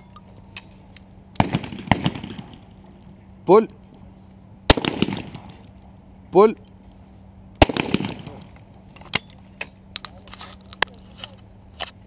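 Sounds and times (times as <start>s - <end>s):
shotgun shot: 1.4s - 2.6s, 4.7s - 5.6s, 7.6s - 8.5s.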